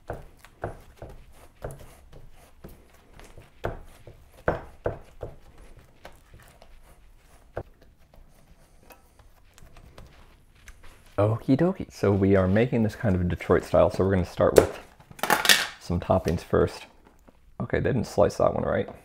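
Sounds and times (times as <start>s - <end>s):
hand patting pizza dough: 0.0s - 13.8s.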